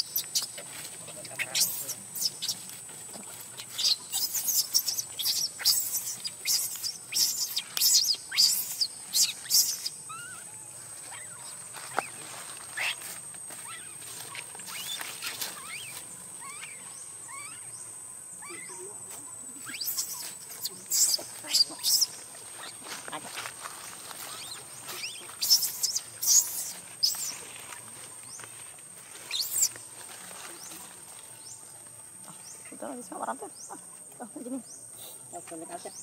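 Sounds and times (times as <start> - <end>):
baby monkey crying: 3.8 - 11.5, 13.6 - 14.0, 15.5 - 17.8, 18.4 - 18.9.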